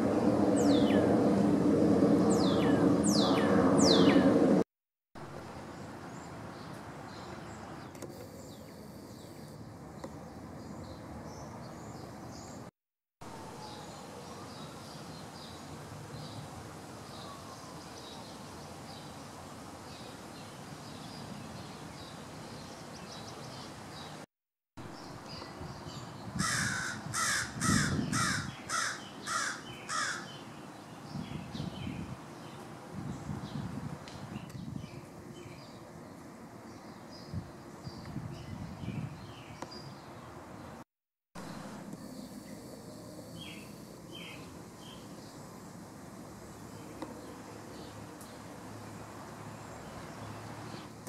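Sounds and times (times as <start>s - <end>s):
small birds chirping: 2.3s - 4.4s, 42.0s - 45.5s
crow cawing: 26.4s - 30.3s.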